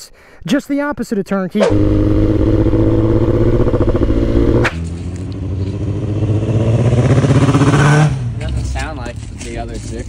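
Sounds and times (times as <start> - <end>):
motorcycle engine running: 1.7 - 8.4.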